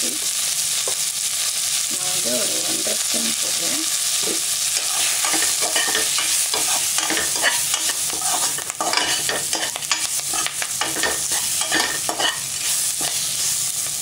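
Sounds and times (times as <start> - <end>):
oil sizzling: 0.0 - 14.0
spoon scraping metal pot: 4.8 - 13.3.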